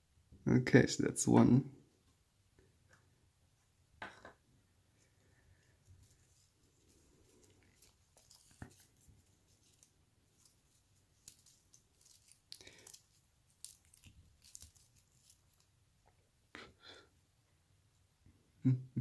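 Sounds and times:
fibrous strands rustling: 0:04.9 - 0:16.2.

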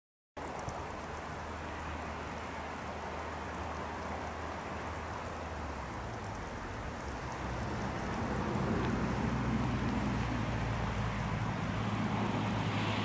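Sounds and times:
low train rumble: 0:05.6 - 0:13.0.

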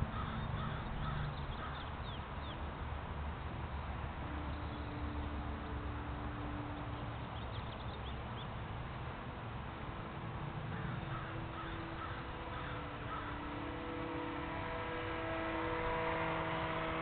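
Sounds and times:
bird calls: 0:00.0 - 0:02.6, 0:10.7 - 0:16.0
small electric plane motor hum: 0:09.6 - 0:17.0.

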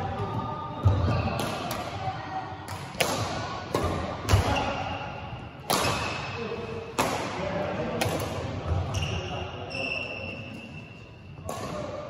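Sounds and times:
rackets striking shuttlecock: 0:01.3 - 0:02.0, 0:02.7 - 0:04.7, 0:05.6 - 0:06.3, 0:06.9 - 0:08.5.

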